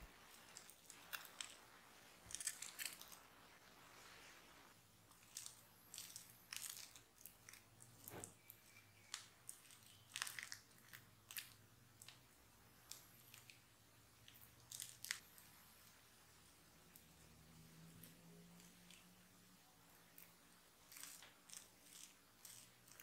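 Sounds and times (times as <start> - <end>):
spatula working sticky dough: 17.7 - 23.0.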